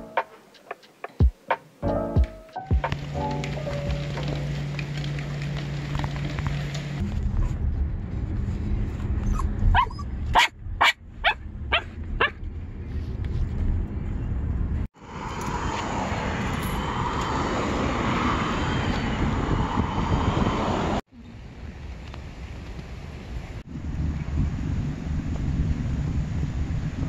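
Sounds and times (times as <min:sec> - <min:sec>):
car road rumble: 0:02.7 - 0:27.0
dog barking: 0:09.7 - 0:12.4
steady rushing noise: 0:12.6 - 0:21.0.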